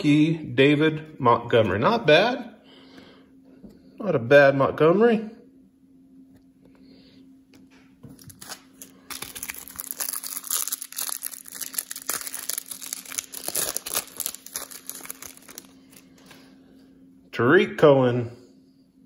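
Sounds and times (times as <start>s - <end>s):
faint steady hum: 0.0s - 19.0s
plastic wrapper crinkling and tearing: 8.1s - 16.2s.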